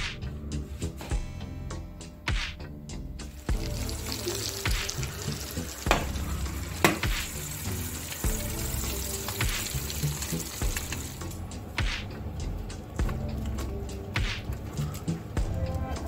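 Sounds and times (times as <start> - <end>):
chicken sizzling on baking tray: 3.2 - 11.5.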